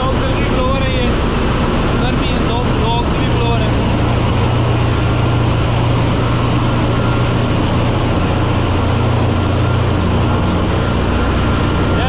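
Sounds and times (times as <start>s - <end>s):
engine room machinery drone: 0.0s - 12.0s.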